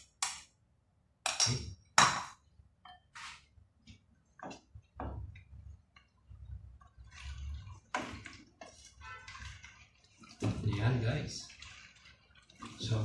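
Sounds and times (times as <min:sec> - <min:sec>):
spatula stirring stew in pot: 0:04.1 - 0:13.0.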